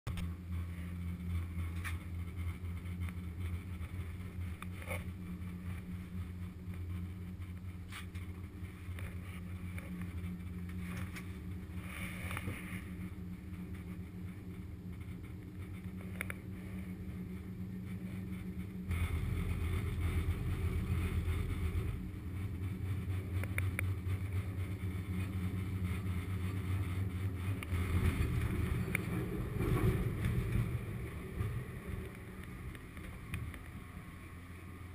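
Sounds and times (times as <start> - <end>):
gondola cabin humming on cable: 0.1 - 34.9
faint clicks: 15.4 - 16.4.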